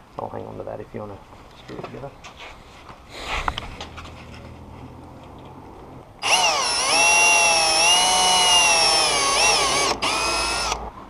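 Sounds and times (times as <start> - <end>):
cordless drill whining: 6.2 - 10.8.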